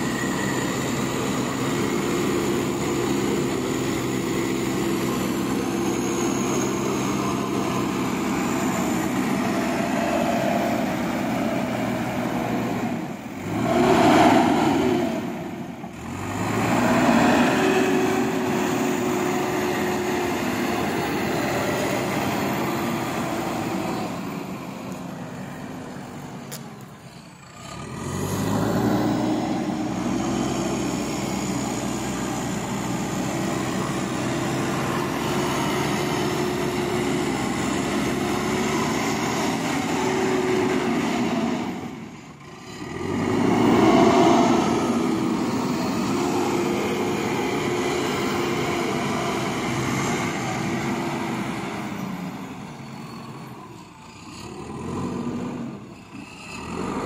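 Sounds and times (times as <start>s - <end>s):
diesel engine running under load: 0.0s - 57.0s.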